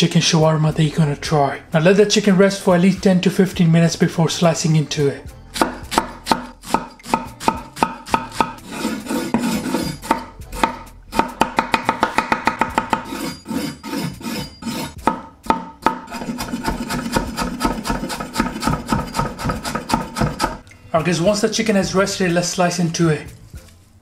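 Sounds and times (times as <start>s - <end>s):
knife chopping on wooden board: 5.6s - 13.3s, 14.0s - 20.6s.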